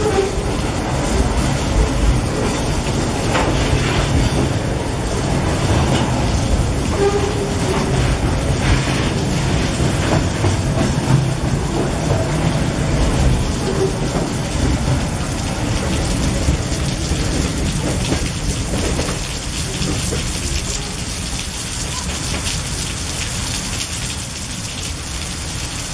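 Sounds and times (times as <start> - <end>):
freight wagons rumbling: 0.0 - 24.6
heavy rain on a canopy: 0.0 - 25.9.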